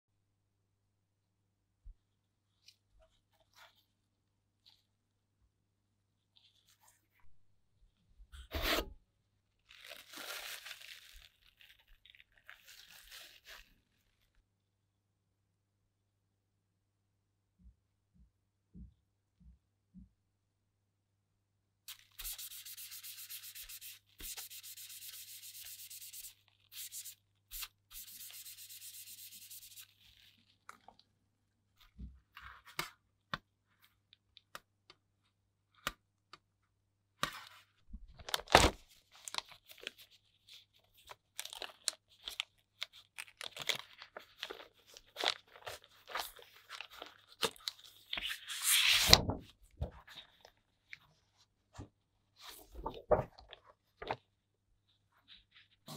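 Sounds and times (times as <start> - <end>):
paper sheet scraping: 8.5 - 8.9, 21.9 - 30.3, 48.1 - 49.4.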